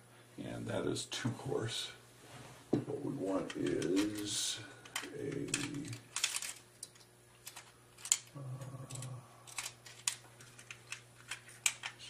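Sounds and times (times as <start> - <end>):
small tools clicking and tapping: 3.5 - 12.0.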